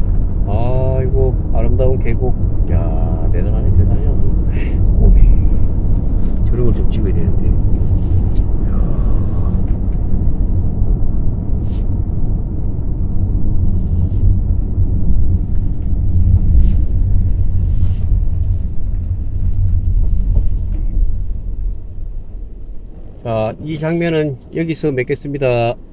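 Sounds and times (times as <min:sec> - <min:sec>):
car interior road rumble: 0:00.0 - 0:25.9.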